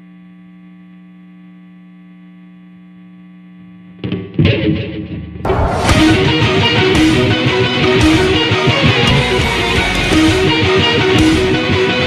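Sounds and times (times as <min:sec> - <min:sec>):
electrical hum: 0:00.0 - 0:04.0
distorted electric guitar: 0:03.6 - 0:12.0.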